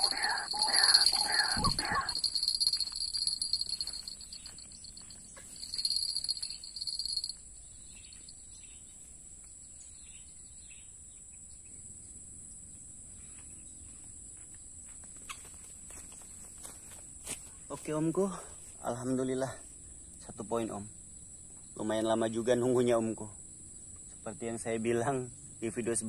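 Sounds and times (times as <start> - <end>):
insects chirring in high trill: 0.0 - 9.1, 18.0 - 26.0
pulsing insect trill: 0.0 - 9.1, 18.1 - 26.0.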